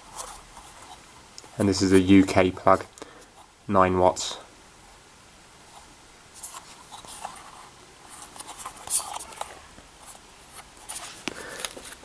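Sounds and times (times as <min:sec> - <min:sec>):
scratchy rustles: 0:00.0 - 0:01.7, 0:05.7 - 0:12.0.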